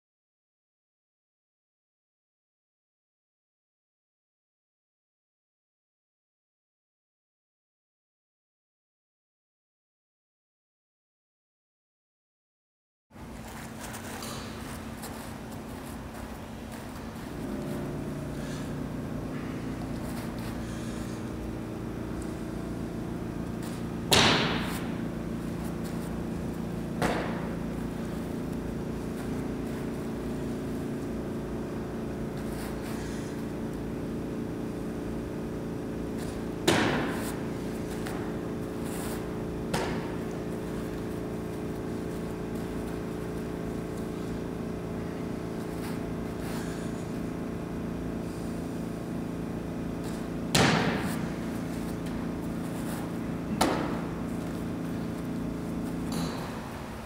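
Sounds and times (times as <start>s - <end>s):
steady low hum: 13.1s - 57.0s.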